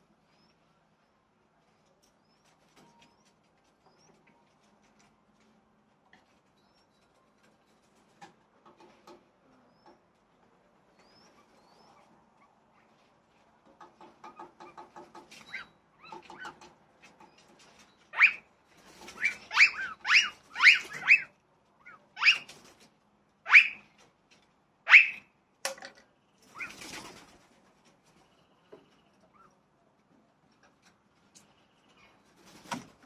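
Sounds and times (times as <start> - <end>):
birds calling sharply: 13.8 - 22.8, 23.5 - 24.1, 24.9 - 25.4, 26.0 - 27.3
wing flapping: 14.3 - 21.3, 22.2 - 23.0, 26.4 - 28.2, 32.3 - 33.0.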